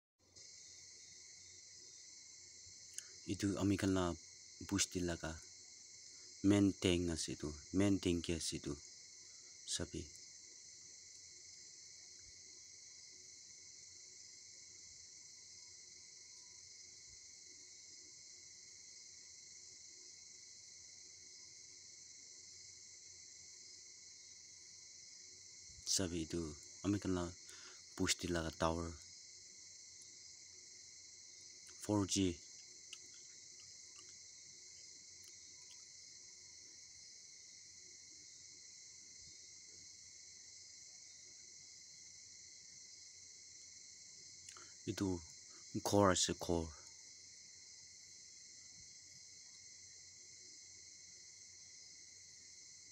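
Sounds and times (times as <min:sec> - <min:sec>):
faint steady tone: 0:00.2 - 0:52.9
insect chorus drone: 0:00.2 - 0:52.9.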